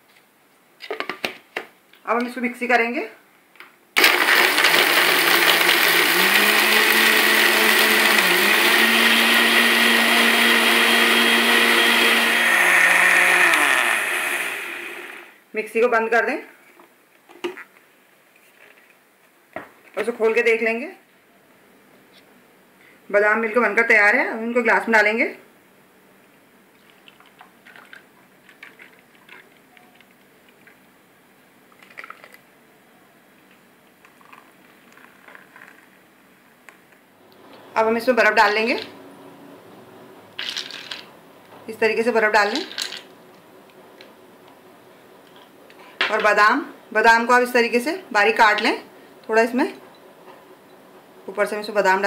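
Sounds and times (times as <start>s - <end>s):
mixer grinder motor whine: 4.0s - 15.4s
milk pouring into a glass: 26.8s - 30.8s, 31.7s - 32.5s, 34.0s - 35.9s.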